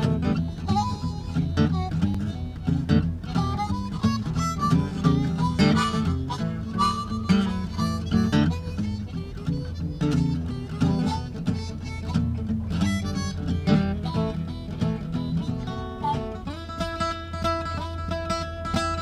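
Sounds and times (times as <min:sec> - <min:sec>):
acoustic guitar strumming blues: 0:00.0 - 0:19.0
harmonica melody: 0:00.0 - 0:19.0.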